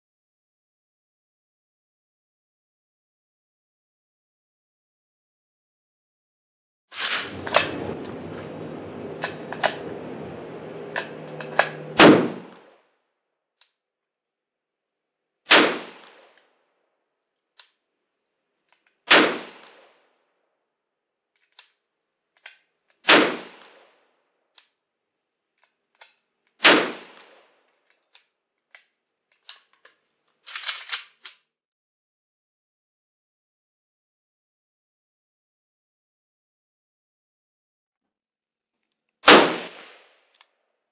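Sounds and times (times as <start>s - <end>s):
droning noise: 7.2s - 12.6s
gunshots: 10.9s - 12.7s, 15.5s - 16.4s, 19.1s - 19.9s, 23.1s - 23.8s, 26.6s - 27.4s, 39.3s - 40.0s.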